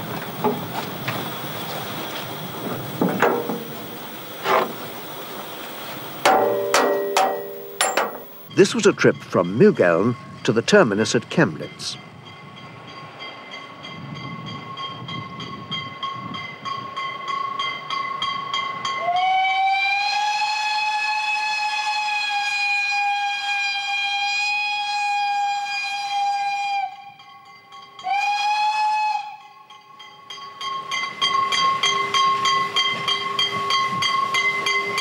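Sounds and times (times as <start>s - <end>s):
steam locomotive exhaust beating: 0.0s - 8.5s
steam whistle blast: 19.0s - 27.1s, 28.0s - 29.5s.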